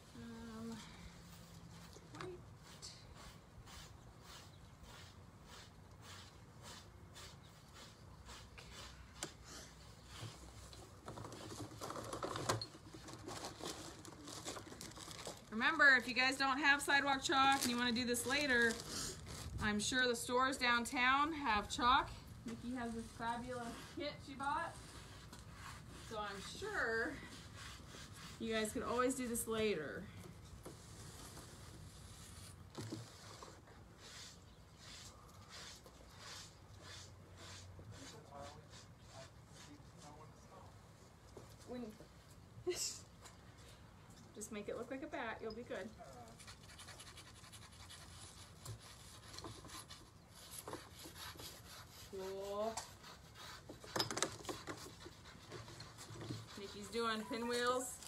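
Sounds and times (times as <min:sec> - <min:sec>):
chalk scraping on concrete: 0:02.6 - 0:10.7, 0:20.5 - 0:29.8, 0:30.7 - 0:40.2, 0:46.3 - 0:58.0.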